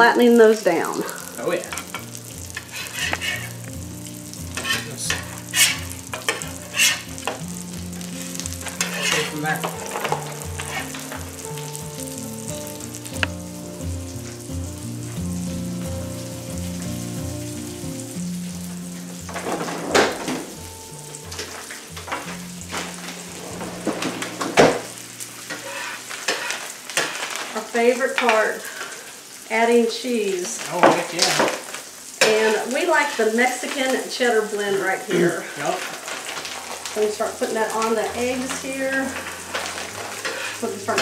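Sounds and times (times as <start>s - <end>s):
food sizzling on griddle: 0.0s - 41.0s
metal spatula scraping griddle: 1.8s - 3.6s, 4.5s - 11.4s, 21.4s - 27.6s, 35.3s - 41.0s.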